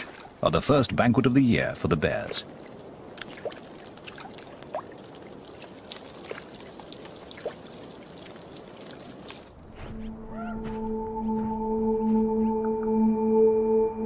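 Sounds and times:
small splashes and drips: 0.0s - 0.4s, 2.1s - 9.6s
water trickling and lapping: 0.0s - 10.1s.

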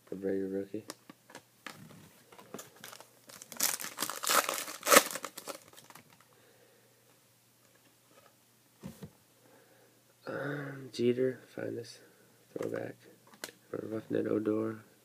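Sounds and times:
foil wrapper crinkling and tearing: 2.6s - 6.2s.

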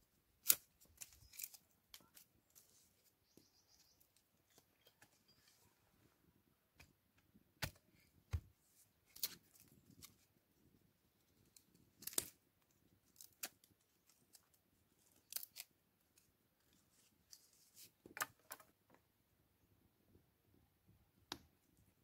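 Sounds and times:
dry wood snapping and crackling: 0.4s - 2.6s, 11.5s - 12.4s, 13.0s - 14.6s, 15.2s - 15.7s.

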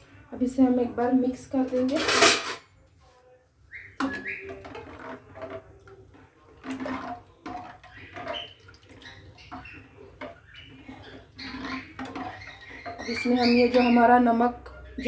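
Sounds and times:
ladle scraping and clinking pan: 1.7s - 2.6s, 4.0s - 5.8s, 6.6s - 13.9s
liquid sloshing in pan: 3.7s - 13.9s.

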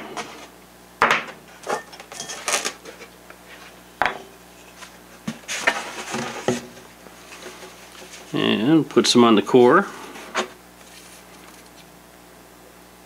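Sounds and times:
knocks and clatters on workbench: 1.0s - 1.4s, 4.0s - 4.3s.

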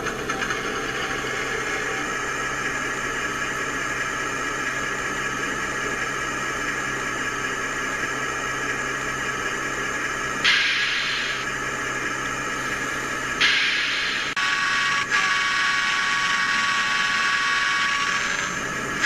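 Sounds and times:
model locomotive diesel idle sound: 0.0s - 19.0s
loud hiss: 10.4s - 11.4s, 13.4s - 14.4s.

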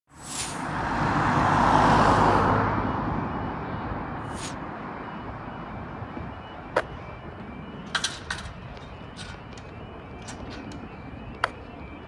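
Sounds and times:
car driving past: 0.4s - 2.9s.

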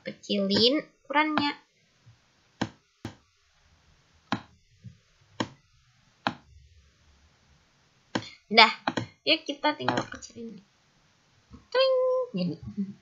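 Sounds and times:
computer mouse clicking: 8.2s - 9.1s.

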